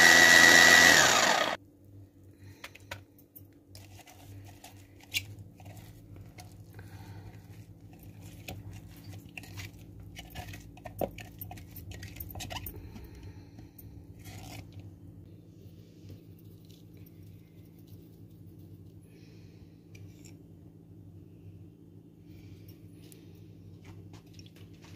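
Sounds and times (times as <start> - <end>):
steady low hum: 0.0 - 24.9.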